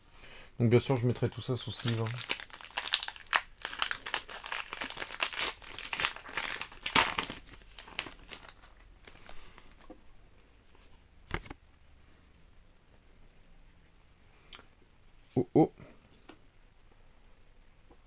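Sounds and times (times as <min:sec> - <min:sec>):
foil wrapper crinkling and tearing: 0:01.6 - 0:09.5.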